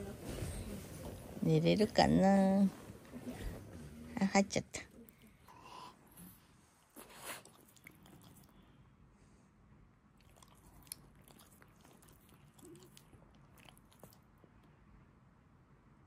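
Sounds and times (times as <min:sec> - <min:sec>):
dog smacking lips: 0:04.8 - 0:08.6, 0:10.2 - 0:14.7.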